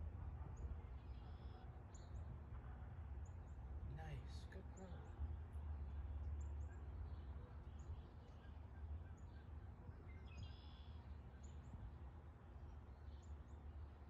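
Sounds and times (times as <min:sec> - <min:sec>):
bird chirps: 0:10.1 - 0:11.6.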